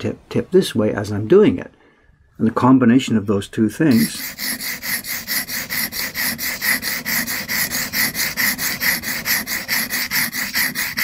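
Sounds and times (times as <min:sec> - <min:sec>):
chisel scraping on sharpening stone: 0:03.9 - 0:11.0.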